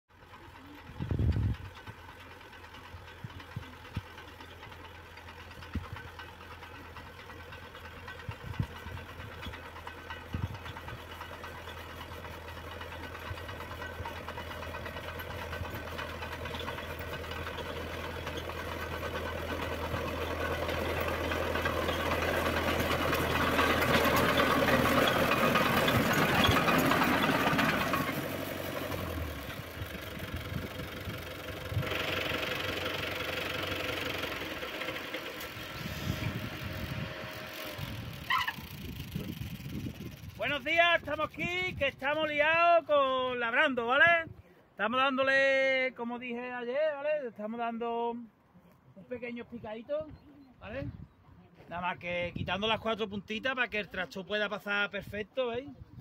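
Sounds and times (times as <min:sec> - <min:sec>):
crawler tractor engine running: 0:00.1 - 0:44.8.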